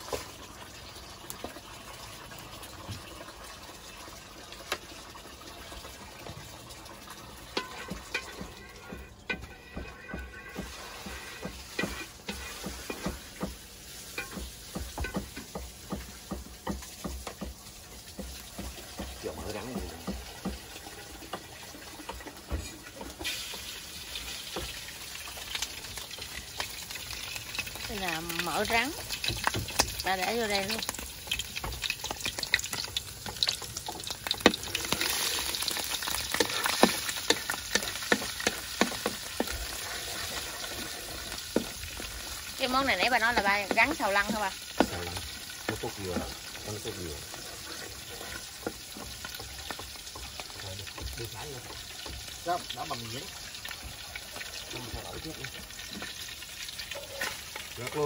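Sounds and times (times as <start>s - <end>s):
meat sizzling in a pan: 0.0s - 58.0s
spatula scraping and knocking a pan: 7.4s - 57.8s.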